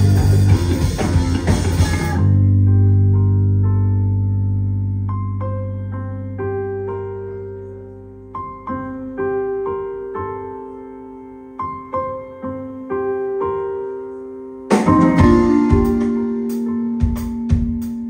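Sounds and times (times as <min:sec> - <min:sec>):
band with drums: 0:00.0 - 0:02.3, 0:14.7 - 0:18.0
electric piano phrase: 0:00.0 - 0:18.0.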